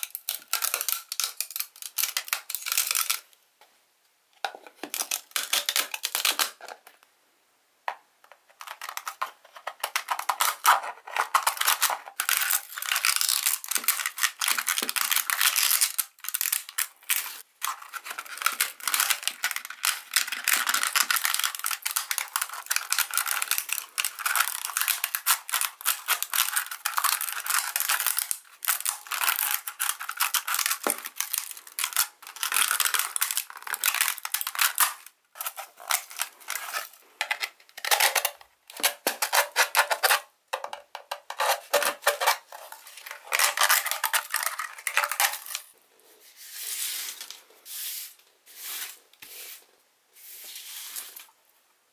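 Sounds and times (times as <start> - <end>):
sandpaper scraping plastic: 46.2 - 49.6.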